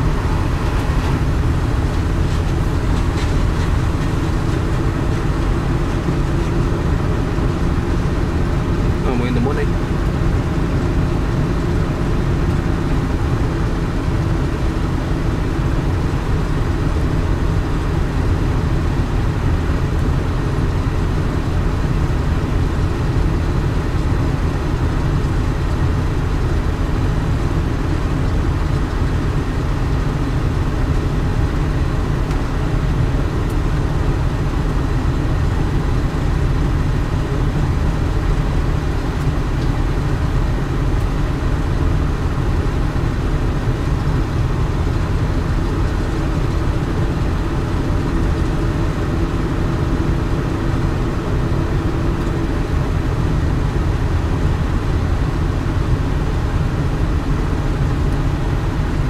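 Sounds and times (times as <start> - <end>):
excavator diesel engine: 0.0 - 59.0.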